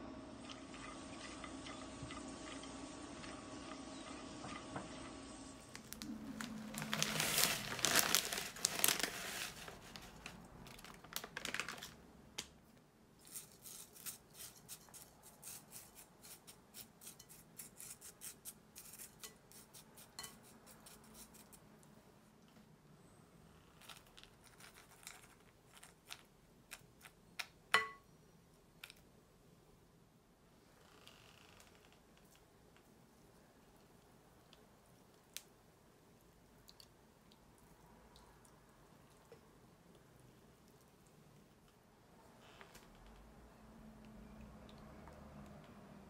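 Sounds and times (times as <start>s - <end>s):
spoon scraping into bowl: 17.0s - 21.5s.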